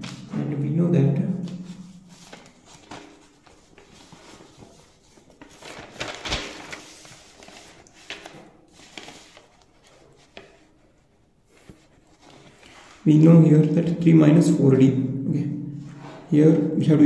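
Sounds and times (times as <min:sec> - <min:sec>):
paper rustling: 0:00.0 - 0:00.4, 0:01.4 - 0:13.1.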